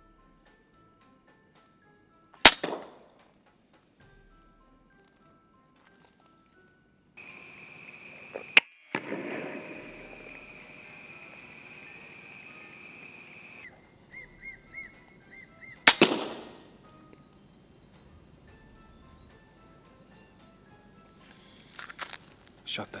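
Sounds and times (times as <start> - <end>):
air rifle shots: 2.4 - 3.1, 8.9 - 11.8, 15.8 - 16.8.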